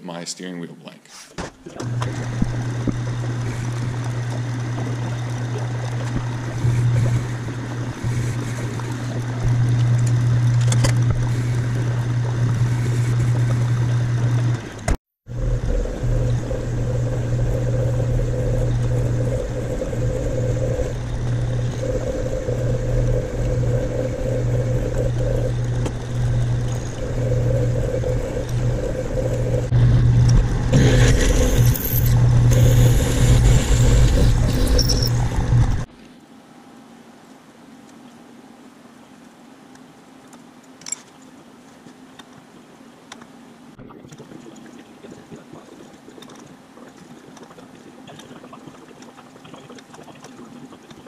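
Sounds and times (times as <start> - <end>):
metal lathe humming: 1.8 - 35.9.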